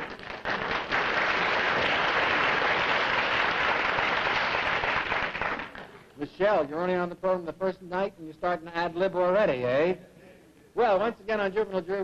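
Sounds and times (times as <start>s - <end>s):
studio audience applauding: 0.0s - 5.9s.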